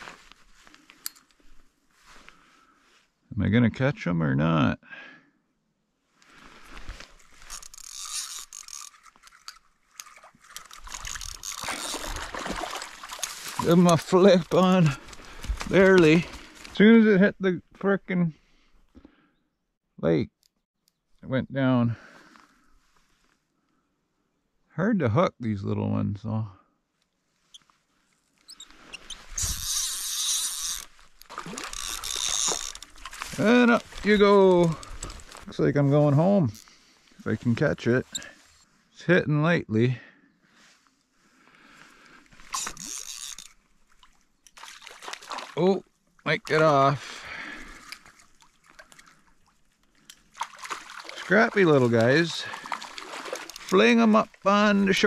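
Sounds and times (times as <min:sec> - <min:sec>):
fishing reel gears clicking: 0:07.4 - 0:12.2, 0:29.4 - 0:33.0, 0:42.5 - 0:43.6
fish splashing at water surface: 0:08.9 - 0:13.8, 0:31.2 - 0:33.3, 0:44.5 - 0:45.6, 0:47.6 - 0:53.8.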